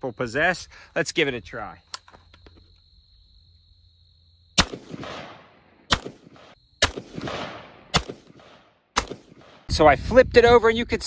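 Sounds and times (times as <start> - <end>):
rifle shots with echo: 4.6 - 9.7.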